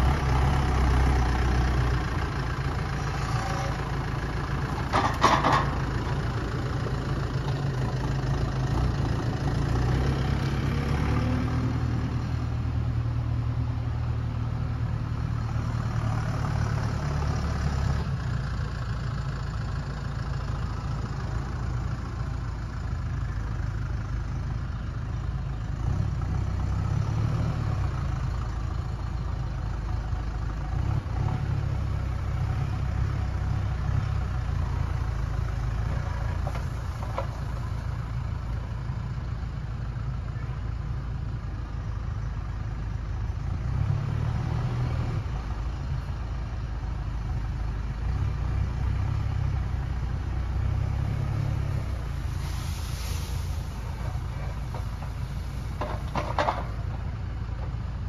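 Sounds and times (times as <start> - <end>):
tractor engine under load: 0.0 - 58.0.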